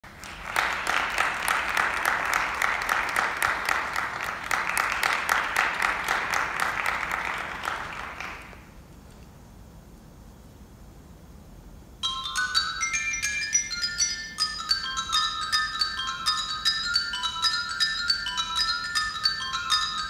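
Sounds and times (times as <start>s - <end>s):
small audience applauding: 0.0s - 8.8s.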